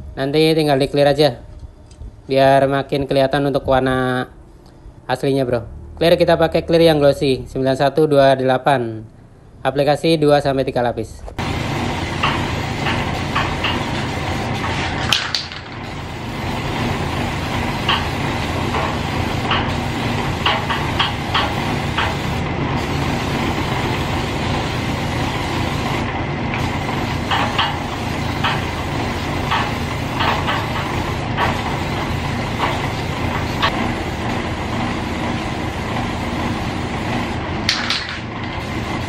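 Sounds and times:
aerosol spray can hissing: 11.4s - 38.0s, 38.6s - 39.0s.

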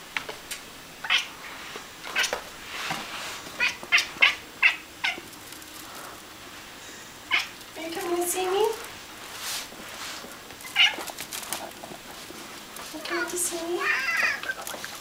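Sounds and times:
cat meowing: 7.3s - 7.5s, 13.8s - 14.6s.

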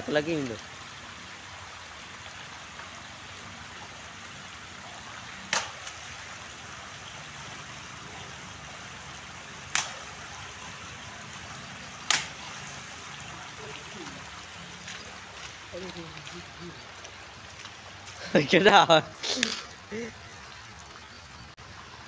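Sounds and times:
shallow water running over concrete: 0.0s - 22.0s
stick smacking water: 5.5s - 6.0s, 9.6s - 10.4s, 12.0s - 12.6s.

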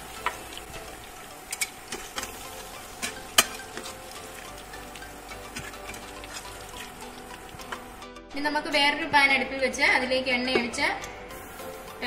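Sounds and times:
chicken sizzling in oil: 0.0s - 8.0s
metal spatula scraping a pan: 1.6s - 4.2s, 5.4s - 7.0s.

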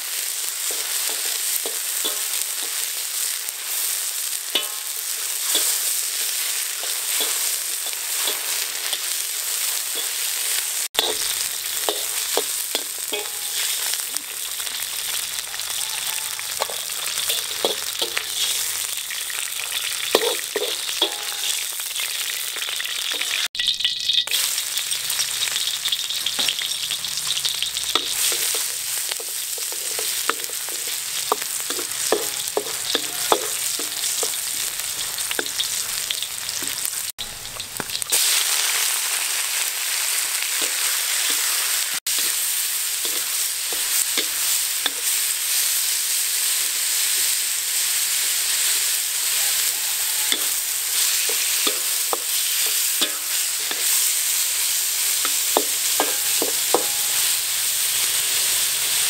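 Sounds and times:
food sizzling in oil: 0.0s - 59.0s.

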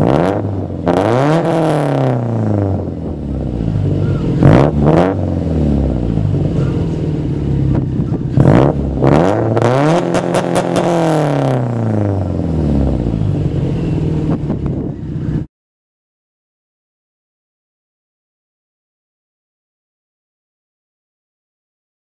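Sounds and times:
car engine idling and revving: 0.0s - 15.5s.

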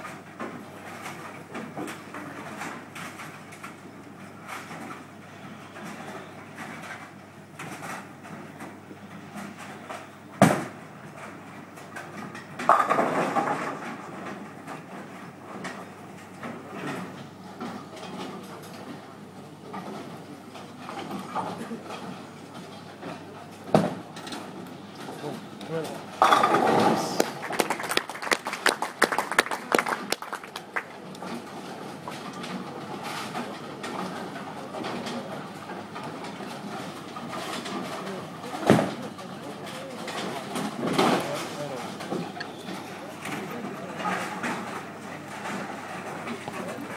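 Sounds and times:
bowling hall background noise: 0.0s - 46.9s
bowling pins crashing: 12.3s - 15.7s, 26.1s - 28.8s
bowling ball knock on lane: 26.2s - 27.4s
people clapping: 26.3s - 31.5s.

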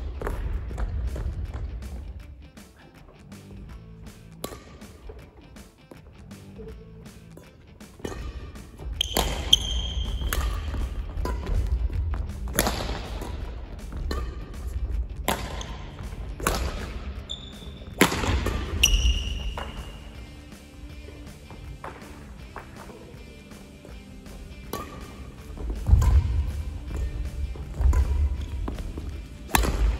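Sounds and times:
shoes squeaking on court floor: 0.0s - 29.9s
shuttlecock hits off racket: 8.0s - 11.7s, 15.2s - 17.0s, 24.6s - 29.9s.

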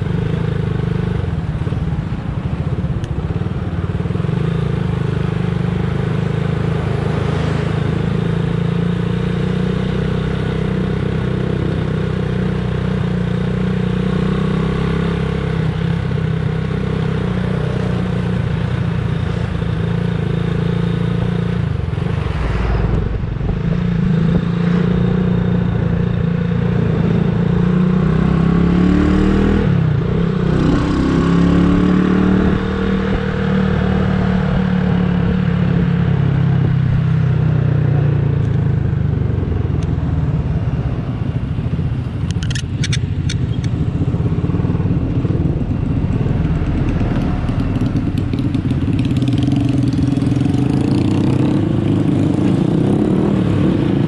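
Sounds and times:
motorcycle engine running: 23.0s - 54.0s
sharp clicks: 42.2s - 43.8s.

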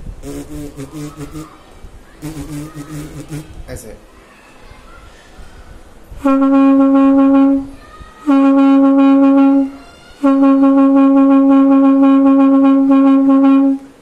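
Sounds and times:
conch shell blasts: 0.2s - 1.5s, 2.2s - 3.6s, 6.2s - 7.7s.

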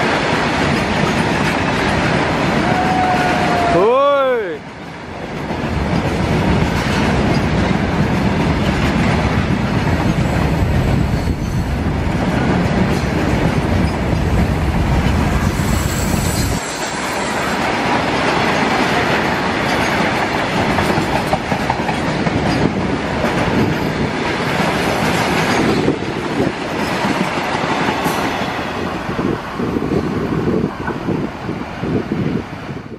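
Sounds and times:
deep low train rumble: 0.0s - 32.9s
wheels clattering on rail joints: 5.2s - 31.2s.

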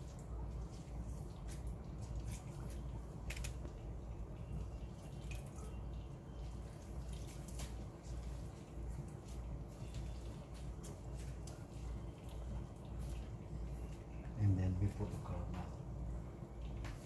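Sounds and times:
juice dripping into a metal pot: 0.0s - 17.0s.

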